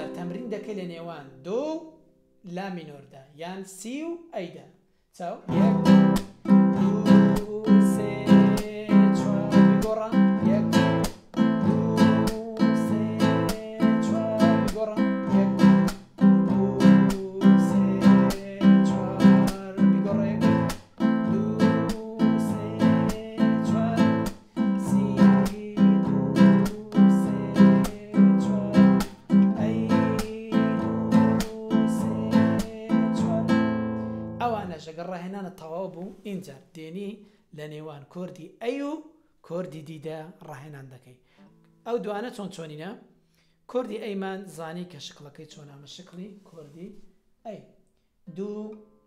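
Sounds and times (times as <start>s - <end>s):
classical guitar strumming chords: 0.0s - 2.5s, 5.5s - 34.7s.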